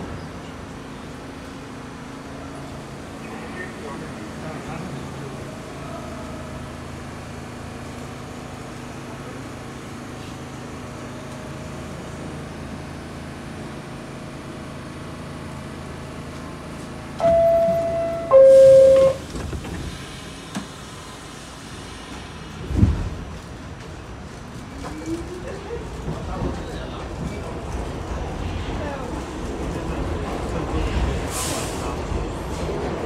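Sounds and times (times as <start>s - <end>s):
subway car drone: 0.0s - 33.0s
two-tone door chime: 17.2s - 19.2s.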